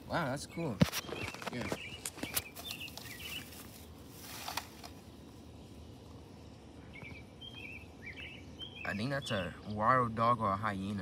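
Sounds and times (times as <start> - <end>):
small birds chirping: 0.0 - 11.0
brief rustle: 0.8 - 5.0.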